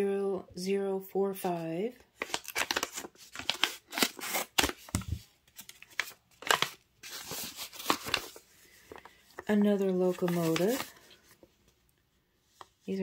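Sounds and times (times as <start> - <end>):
paper envelope rustling: 2.2 - 11.8.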